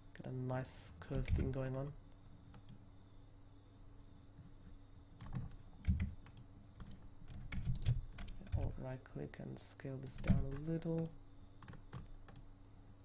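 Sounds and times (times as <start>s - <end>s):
faint steady hum: 0.0s - 13.0s
keyboard and mouse clicking: 5.2s - 8.7s, 10.2s - 12.5s.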